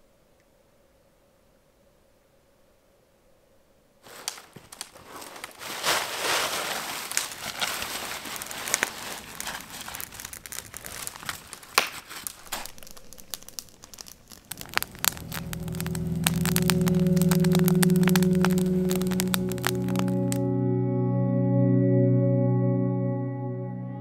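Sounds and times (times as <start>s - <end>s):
fabric crinkling and rustling: 4.0s - 20.4s
music: 14.6s - 24.0s.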